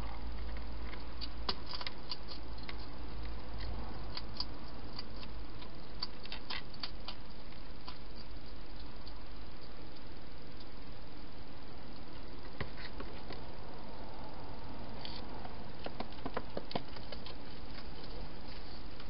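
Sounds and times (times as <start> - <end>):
hedgehog chewing crunches: 0.0 - 10.7.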